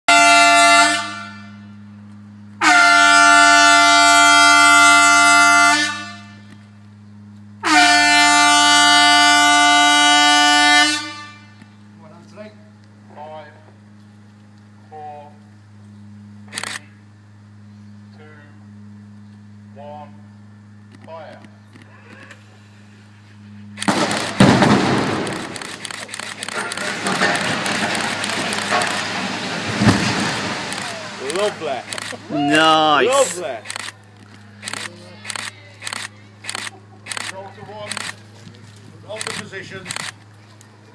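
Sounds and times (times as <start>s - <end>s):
warning horn blasts: 0.1s - 2.0s, 2.6s - 6.6s, 7.6s - 11.7s
demolition charge bang: 23.9s - 25.6s, 26.6s - 31.9s
crackling rumble of collapsing tower: 23.9s - 32.3s.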